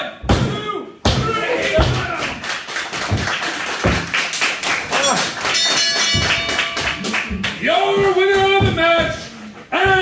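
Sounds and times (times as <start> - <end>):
thuds on wrestling mat: 3.1 - 4.2.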